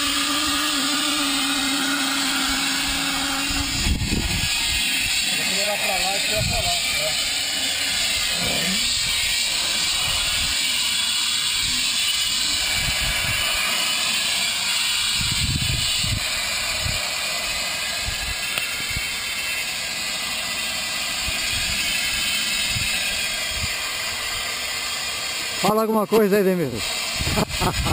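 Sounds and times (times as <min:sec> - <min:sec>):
steady hiss: 0:00.0 - 0:27.9
wind buffeting microphone: 0:03.5 - 0:05.2, 0:06.3 - 0:07.1, 0:08.2 - 0:10.6, 0:11.5 - 0:13.5, 0:15.0 - 0:17.0, 0:22.7 - 0:24.4, 0:27.2 - 0:27.9.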